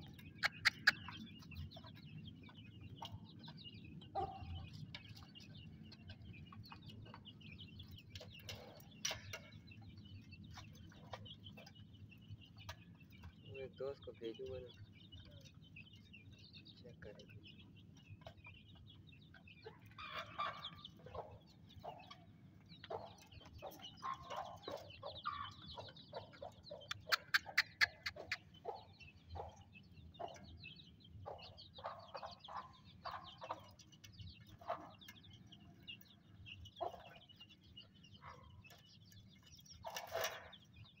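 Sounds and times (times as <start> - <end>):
hen clucking: 0.0 - 7.3, 19.3 - 38.5
chicks peeping: 0.0 - 41.0.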